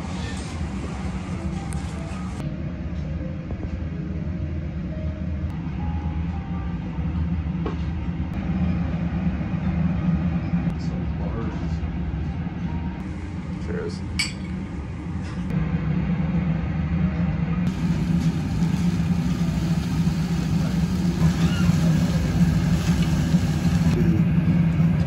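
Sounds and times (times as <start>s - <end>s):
steady low hum: 0.0s - 25.0s
glasses clinking: 14.2s - 14.6s
meat sizzling on a grill: 17.7s - 24.0s.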